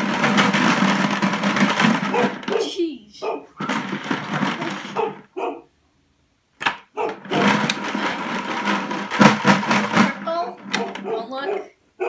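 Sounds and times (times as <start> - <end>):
markers rattling in plastic bucket: 0.0 - 2.7, 3.6 - 5.2, 7.0 - 11.5.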